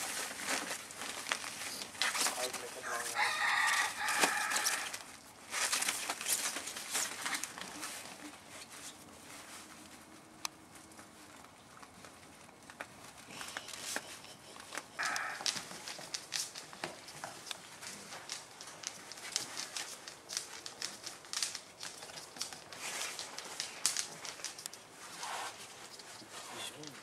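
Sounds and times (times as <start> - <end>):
fabric tunnel rustling: 0.0 - 27.0
paws clicking on patio: 0.0 - 27.0
rooster crowing: 2.8 - 5.0, 15.0 - 15.5.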